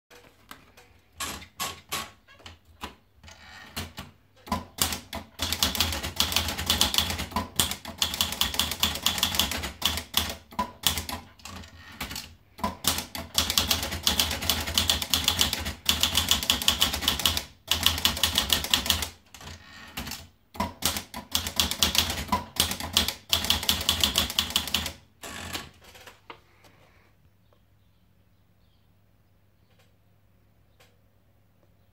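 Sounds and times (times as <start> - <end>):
typewriter typing: 3.6 - 26.2.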